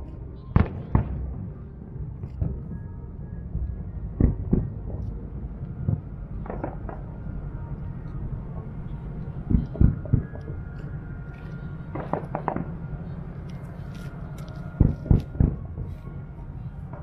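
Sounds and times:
low background rumble: 0.0s - 17.0s
distant fireworks booms: 0.5s - 1.7s, 4.1s - 5.0s, 5.8s - 7.3s, 11.9s - 12.9s, 14.8s - 15.9s.

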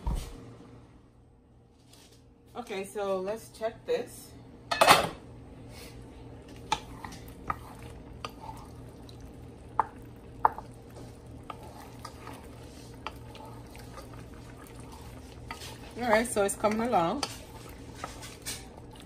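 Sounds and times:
steady low hum: 0.0s - 19.0s
sauce simmering: 5.9s - 19.0s
wet squelching of stirring: 6.4s - 19.0s.

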